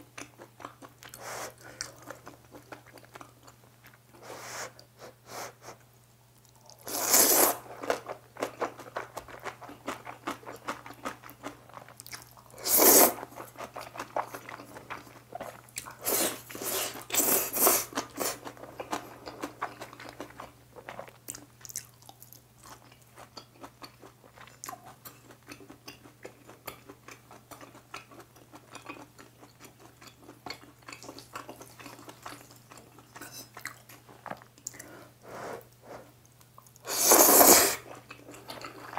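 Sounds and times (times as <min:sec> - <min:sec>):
noodles slurped: 0:06.8 - 0:07.7, 0:12.6 - 0:13.8, 0:36.8 - 0:38.1.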